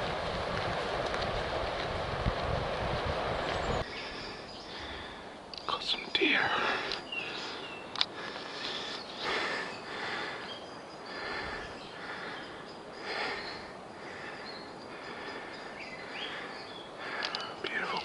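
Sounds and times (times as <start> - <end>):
person breathing hard: 3.8 - 5.4, 6.4 - 17.6.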